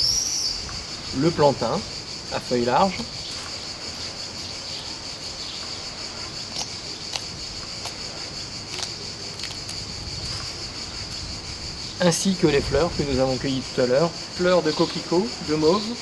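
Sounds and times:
insects chirping: 0.0s - 16.0s
leaves being torn by hand: 6.4s - 8.0s, 8.6s - 10.6s.

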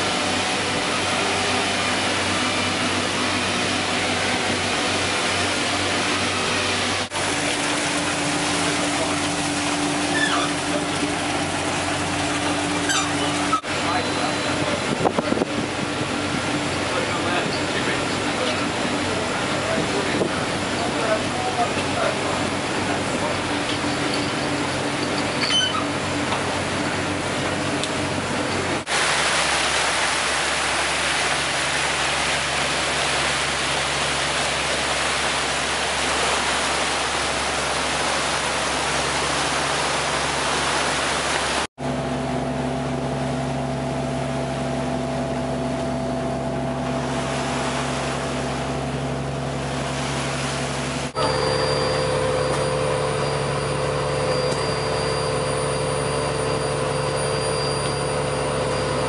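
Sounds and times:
boat engine drone: 0.0s - 59.0s
engine hum with held tones: 0.0s - 59.0s
water rushing past boat hull: 0.0s - 59.0s.

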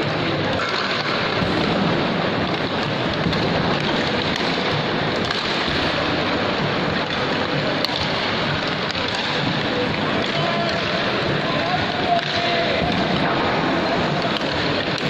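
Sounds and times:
echoing mall hubbub: 0.0s - 15.0s.

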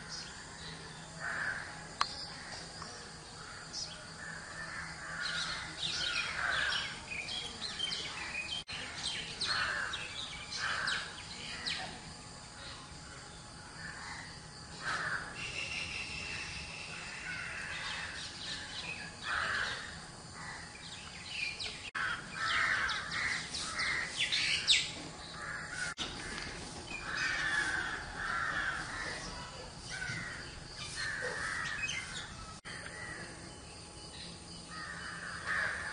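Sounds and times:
birds calling: 0.0s - 12.0s, 13.6s - 35.9s.

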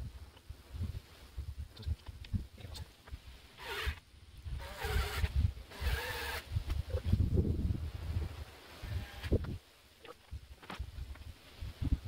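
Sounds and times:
cordless drill whirring: 4.6s - 6.4s.

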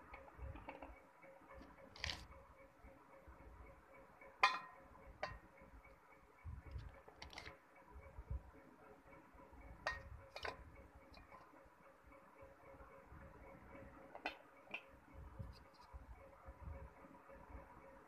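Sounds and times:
clicks and knocks on metal bowl: 0.1s - 1.0s, 4.4s - 5.5s, 9.8s - 11.4s, 14.1s - 14.9s.

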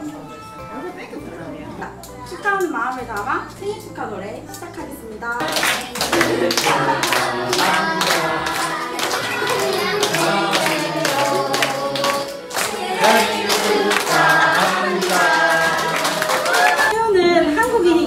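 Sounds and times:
hands clapping: 5.4s - 16.9s
group singing a birthday song: 5.4s - 18.0s.

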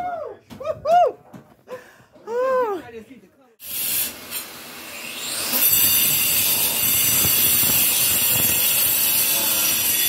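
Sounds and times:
angle grinder grinding stone: 5.2s - 10.0s.

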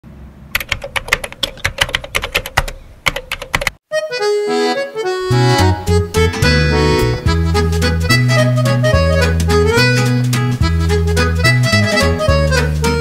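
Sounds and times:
rapid clicking: 0.6s - 3.8s
background music with held notes: 3.9s - 13.0s.

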